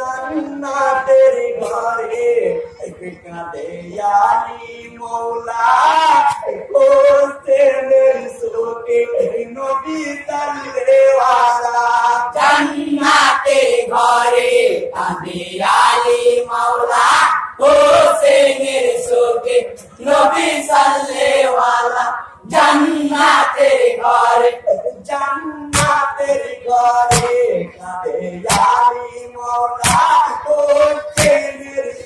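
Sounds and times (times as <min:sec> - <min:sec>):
men chanting a mourning song: 0:00.0 - 0:32.0
sharp knocks: 0:25.7 - 0:26.0, 0:27.1 - 0:27.5, 0:28.5 - 0:28.8, 0:29.8 - 0:30.2, 0:31.2 - 0:31.4.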